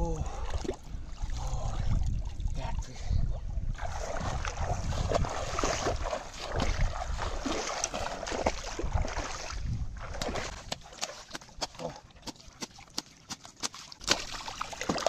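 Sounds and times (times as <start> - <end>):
wind rumbling on microphone: 0.0 - 11.6
feet splashing through water: 3.7 - 15.0.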